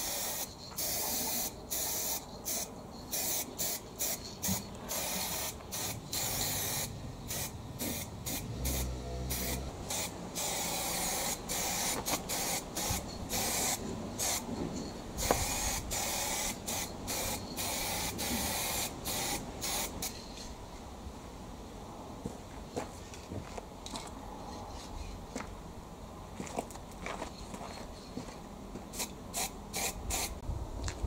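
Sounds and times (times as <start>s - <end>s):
paint spray hissing: 0.0s - 14.5s, 15.2s - 20.2s, 28.9s - 30.4s.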